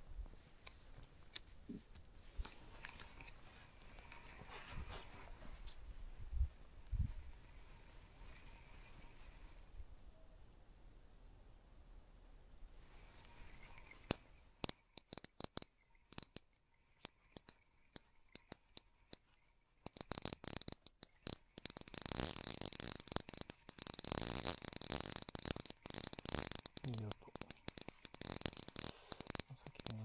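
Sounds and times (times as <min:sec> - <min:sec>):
fishing reel clicking: 0:19.9 - 0:30.0.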